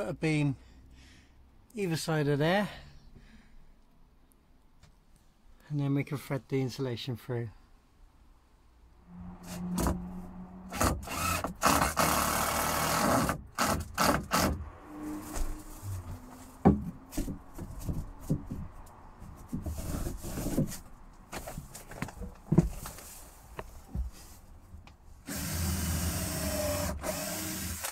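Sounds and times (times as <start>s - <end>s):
timber scraping on timber: 14.3s - 24.4s
wood knocking on wood: 16.6s - 18.8s.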